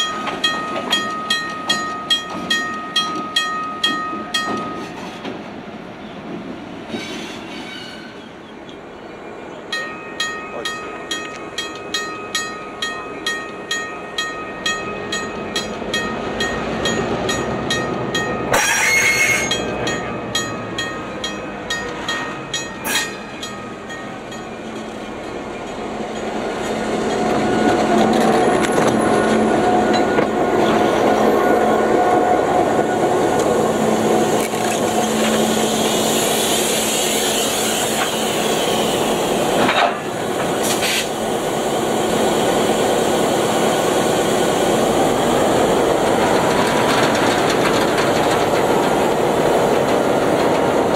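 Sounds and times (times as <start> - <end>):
locomotive bell ringing: 0.0 - 4.9, 9.7 - 27.8
diesel locomotive passing: 0.0 - 50.9.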